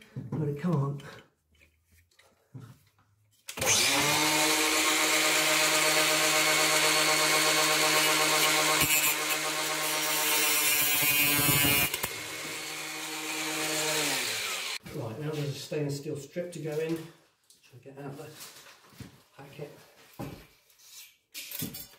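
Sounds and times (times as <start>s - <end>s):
handheld power tool running: 3.5s - 14.8s.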